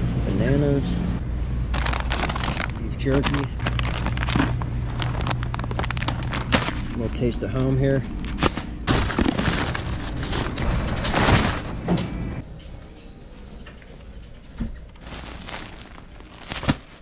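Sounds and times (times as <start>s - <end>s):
store background noise: 0.0s - 17.0s
plastic packaging rustling: 1.7s - 11.8s, 14.8s - 17.0s.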